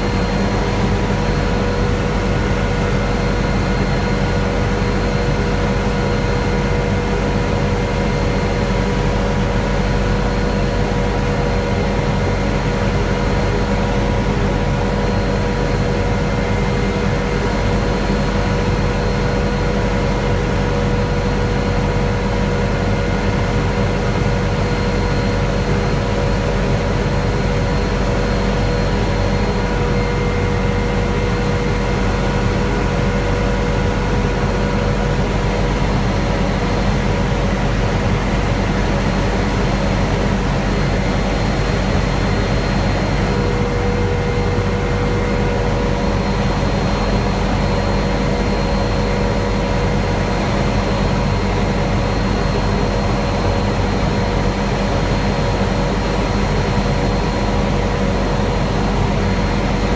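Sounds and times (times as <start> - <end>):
helicopter engine and rotor drone: 0.0 - 59.9
steady whining tones: 23.1 - 56.6.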